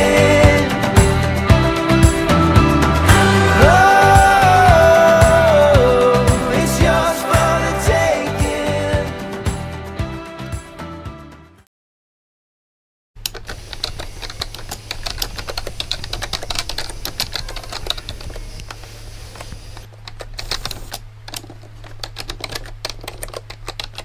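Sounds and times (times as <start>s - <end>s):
music: 0.0s - 11.7s
rapid typing clicks: 13.2s - 18.8s, 20.1s - 24.0s.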